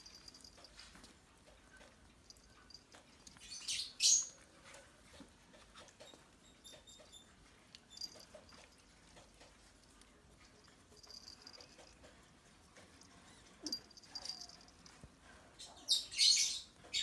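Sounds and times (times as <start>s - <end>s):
paws clicking on blanket: 0.0s - 15.6s.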